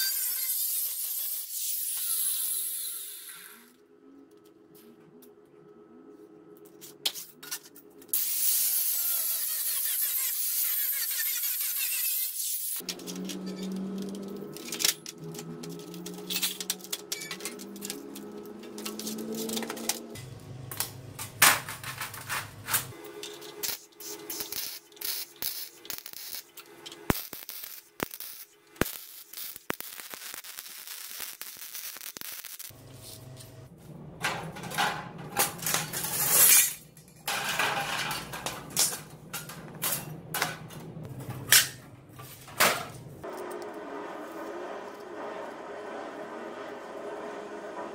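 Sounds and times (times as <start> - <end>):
steel sheets clinking: 34.2 - 43.1.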